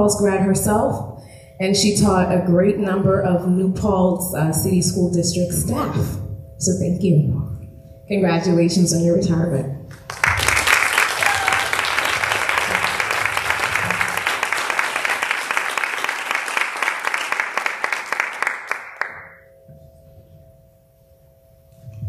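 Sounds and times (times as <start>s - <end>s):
audience applauding: 9.9s - 19.4s.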